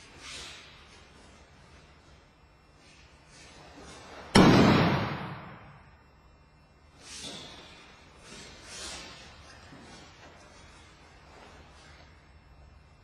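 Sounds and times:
rustling jackets and feet on mat: 0:00.0 - 0:04.4, 0:07.0 - 0:13.0.

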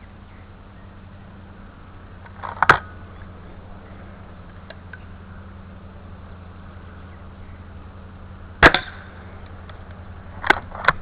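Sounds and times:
air rifle shot: 0:08.6 - 0:09.1.

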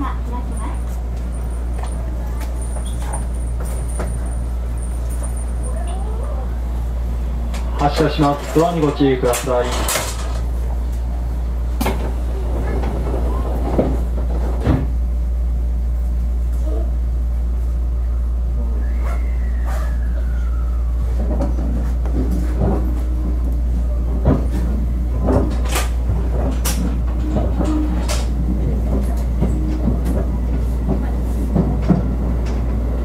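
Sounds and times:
low train hum: 0:00.0 - 0:33.0
train doors shutting thud: 0:07.5 - 0:10.5, 0:11.7 - 0:15.0
clanks and knocks: 0:07.6 - 0:10.5, 0:24.2 - 0:32.7.

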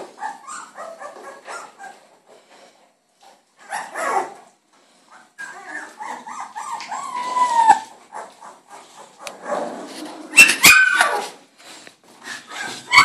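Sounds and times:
puppies yelping: 0:00.0 - 0:02.2, 0:03.6 - 0:09.7, 0:10.3 - 0:11.4, 0:12.2 - 0:13.0
puppies whining and squealing: 0:00.0 - 0:02.3, 0:03.6 - 0:11.5, 0:12.2 - 0:13.0.

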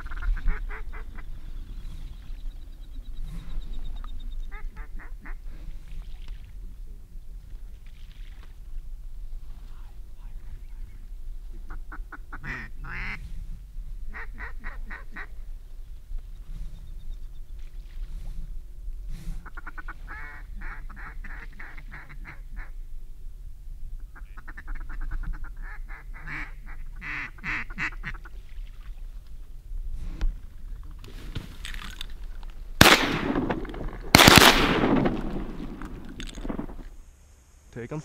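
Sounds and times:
duck quacking: 0:11.7 - 0:13.2, 0:24.1 - 0:28.3.

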